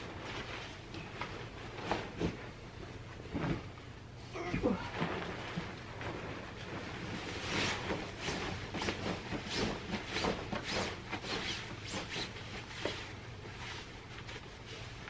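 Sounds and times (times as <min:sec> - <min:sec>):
bedding fabric rustling: 0:00.0 - 0:15.0.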